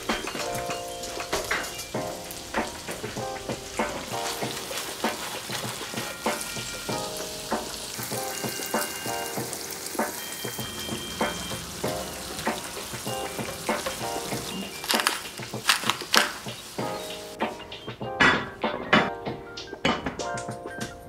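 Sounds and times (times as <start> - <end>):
food sizzling in a frying pan: 0.0 - 17.9.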